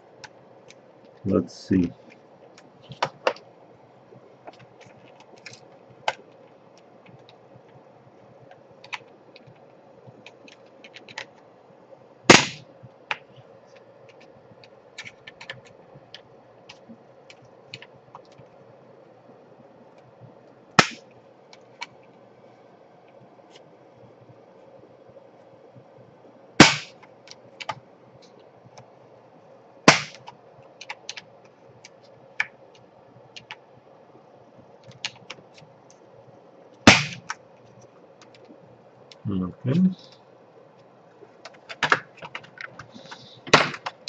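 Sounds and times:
faint steady hum: 0.0 - 44.0
clicks and taps on plastic laptop: 41.4 - 44.0.

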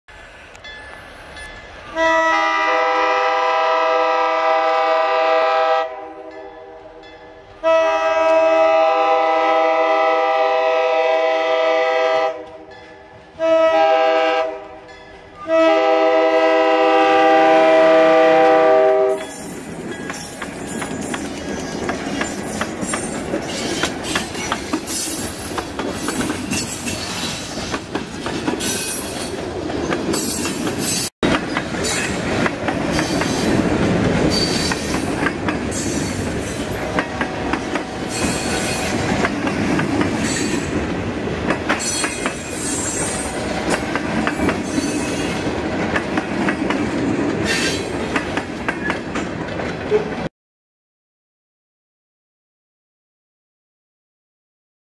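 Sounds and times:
steel wheels rumbling on rail: 0.1 - 50.3
wheels clacking over rail joints: 19.2 - 50.3.

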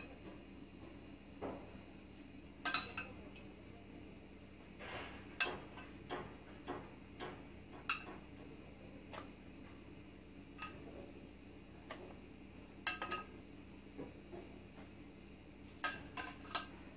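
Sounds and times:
metal spoon clinking on saucepan: 10.6 - 10.8, 15.8 - 16.8.

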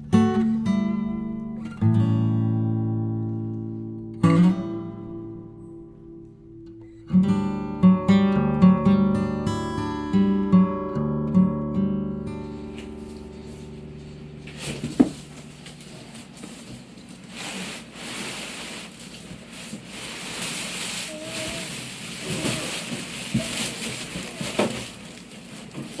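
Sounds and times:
plastic wrap rustling: 12.5 - 26.0
cardboard rubbing and scraping: 14.5 - 26.0.

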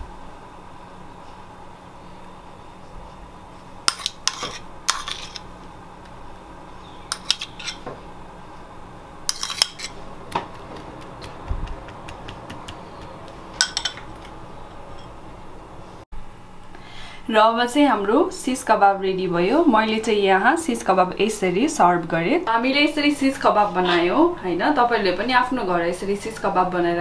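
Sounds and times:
metal spoon clinking on crockery: 13.6 - 14.1.

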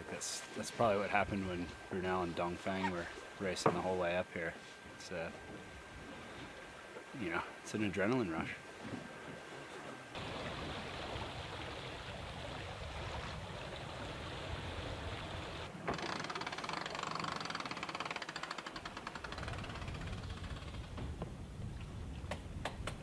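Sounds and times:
water rushing: 10.2 - 15.7.

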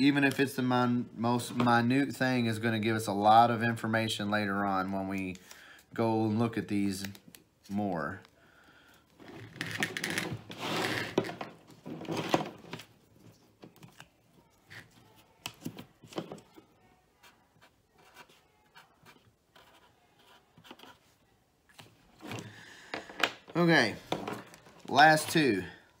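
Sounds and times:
wires rustling: 6.9 - 16.6
marker writing: 17.1 - 21.2.

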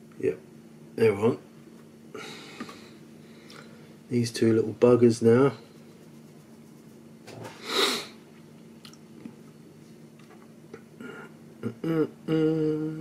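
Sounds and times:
man humming: 11.0 - 13.0.

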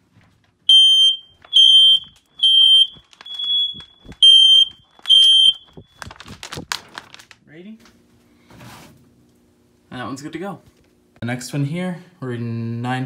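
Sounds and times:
smoke alarm high-pitched beeps: 0.7 - 6.0.

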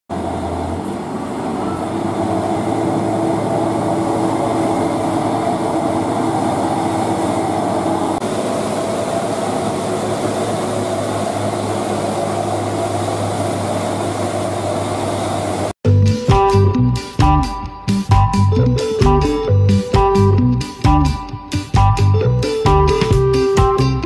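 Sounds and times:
diesel truck engines droning: 0.1 - 24.0.

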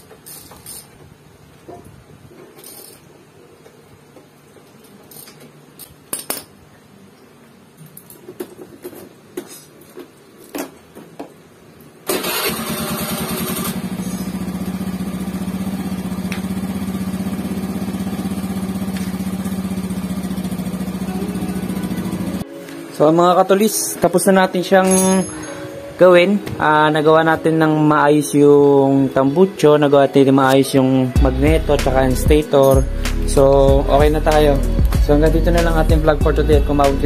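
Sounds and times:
scooter engine starting and idling: 12.0 - 22.4
metal clinks of hand tools: 24.8 - 25.7.

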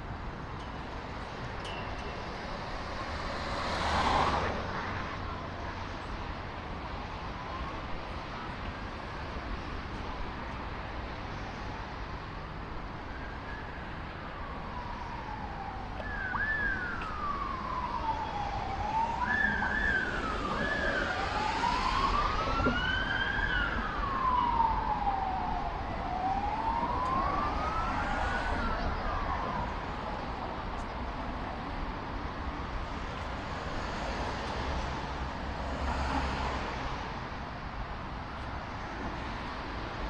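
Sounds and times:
low rumble of city traffic: 0.0 - 40.0
emergency siren wailing: 12.6 - 37.2.

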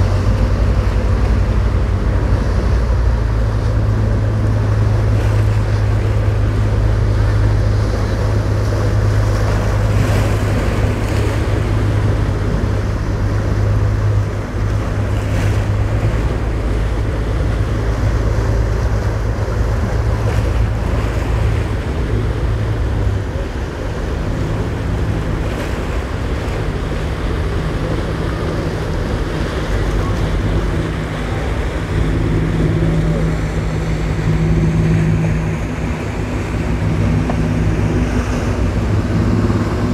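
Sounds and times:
boat engines droning: 0.0 - 39.9
second boat engine hum: 0.0 - 39.9
waves: 0.0 - 39.9
wind noise on microphone: 0.0 - 39.9.

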